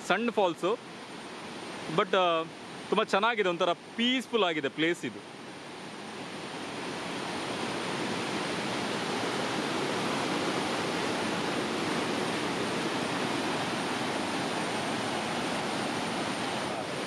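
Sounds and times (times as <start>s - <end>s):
water rushing over rocks: 0.0s - 17.0s.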